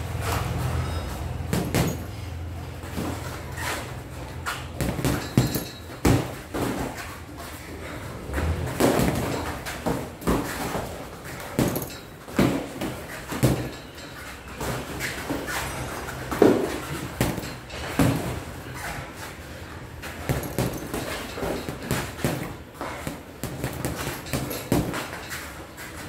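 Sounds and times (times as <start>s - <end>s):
boxing gloves thudding: 1.5s - 2.1s, 4.4s - 7.2s, 8.2s - 13.8s, 16.3s - 18.5s, 20.0s - 25.4s.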